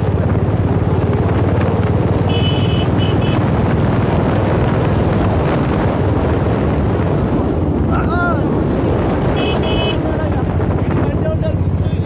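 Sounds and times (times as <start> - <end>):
motorcycle engine running: 0.0 - 12.0
wind buffeting microphone: 0.0 - 12.0
horn beeps: 2.3 - 3.4.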